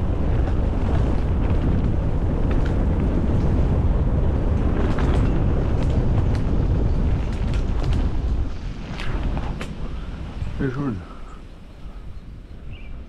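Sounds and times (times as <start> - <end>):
wind buffeting microphone: 0.0 - 13.0
sharp clicks and rattles: 4.4 - 9.8.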